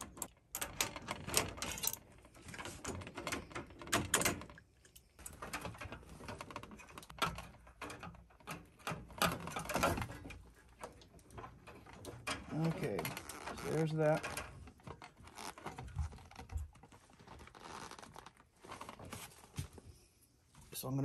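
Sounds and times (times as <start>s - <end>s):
wrenches clicking and scraping on nut: 0.0s - 10.3s.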